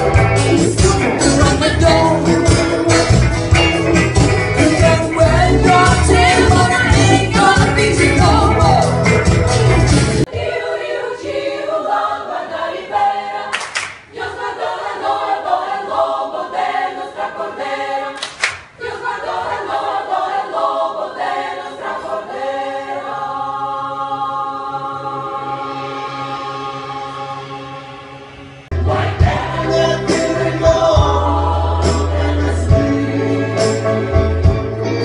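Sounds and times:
women's choir singing in harmony: 0:04.8 - 0:09.0, 0:10.2 - 0:34.3.

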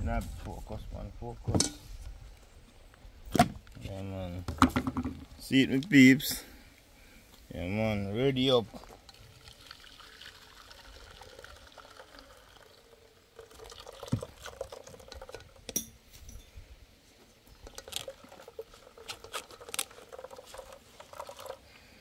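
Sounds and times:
liquid pouring and dripping: 0:08.7 - 0:15.8, 0:17.5 - 0:21.7.

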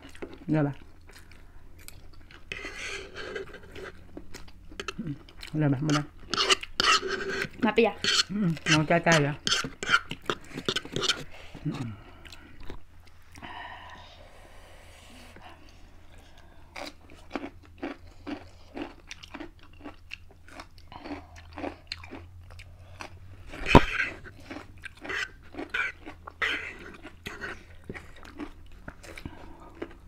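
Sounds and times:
people chewing and biting: 0:00.0 - 0:08.8, 0:09.5 - 0:13.9, 0:15.4 - 0:30.0.

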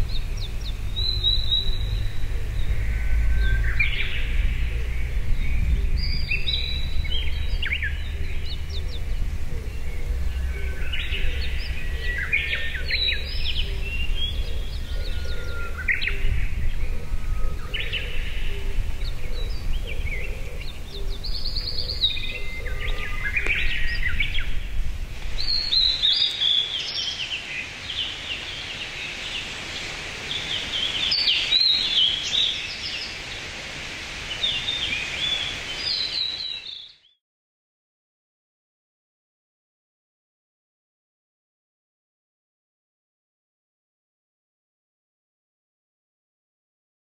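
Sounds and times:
low rumble: 0:00.0 - 0:26.1
bird singing warbled phrases: 0:00.0 - 0:33.5, 0:34.3 - 0:37.2.

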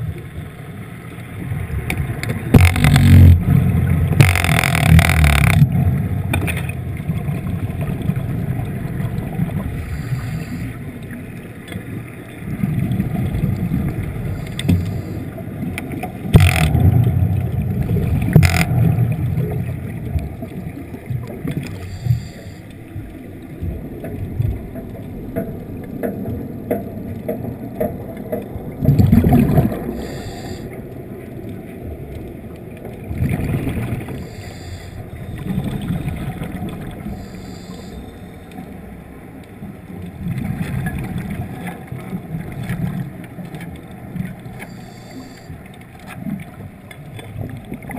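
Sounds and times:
sharp clicks: 0:04.2 - 0:05.7.

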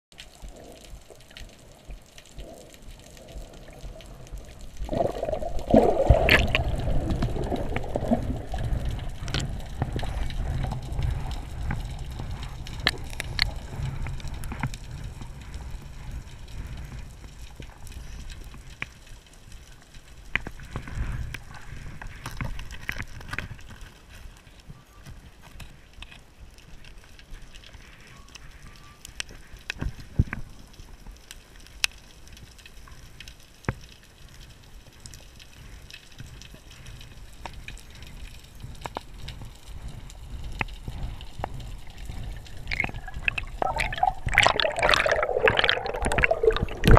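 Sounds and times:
water rushing and bubbling underwater: 0:00.1 - 0:24.3, 0:29.4 - 0:46.9
low underwater rumble: 0:00.3 - 0:18.5, 0:38.4 - 0:46.9.

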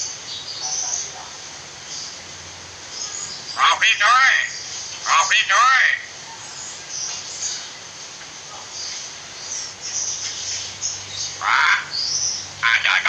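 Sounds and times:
steady hiss: 0:00.0 - 0:13.0
harsh bird call: 0:03.0 - 0:06.2, 0:11.3 - 0:13.0.

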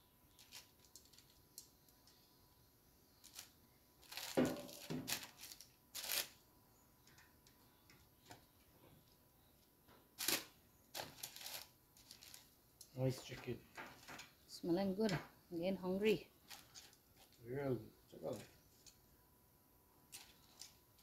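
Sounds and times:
paper rustling: 0:03.2 - 0:06.4, 0:10.2 - 0:12.5.

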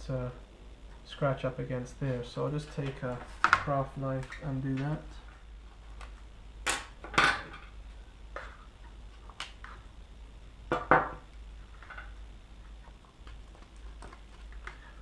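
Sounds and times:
tools knocking on glass tabletop: 0:10.7 - 0:11.2.

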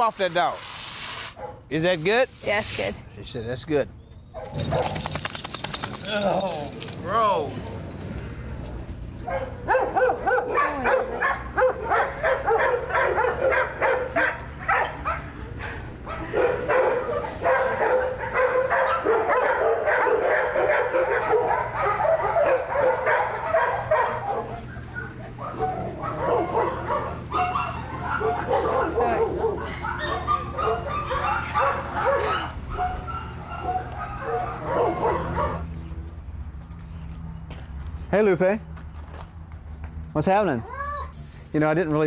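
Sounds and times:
dogs barking and yipping: 0:04.1 - 0:35.9.

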